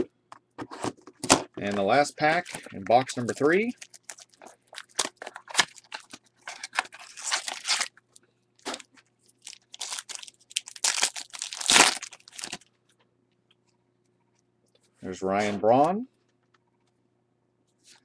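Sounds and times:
foil wrapper crinkling: 2.2 - 7.9, 8.6 - 12.7
foil wrapper ripping open: 3.8 - 7.9, 9.4 - 12.6.

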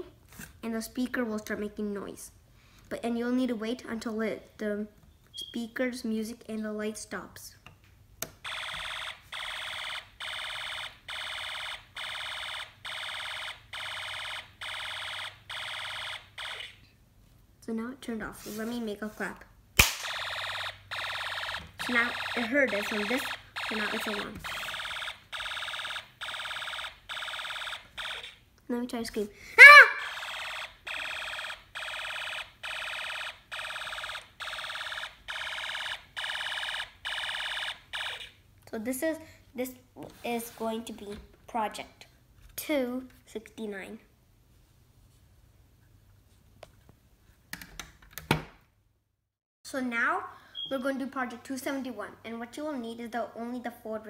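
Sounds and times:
electronic alarm buzzing: 8.4 - 16.8, 20.0 - 28.4, 30.0 - 38.3.

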